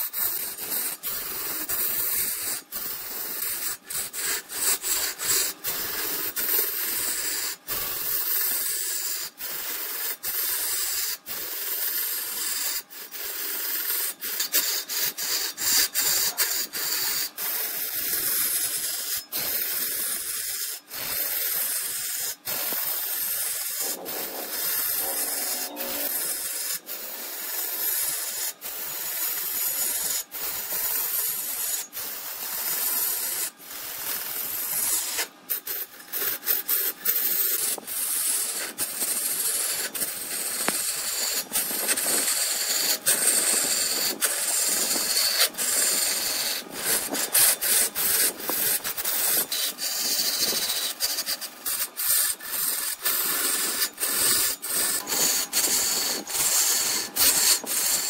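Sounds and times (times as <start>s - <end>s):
turning tool cutting on a lathe: 0.0s - 58.0s.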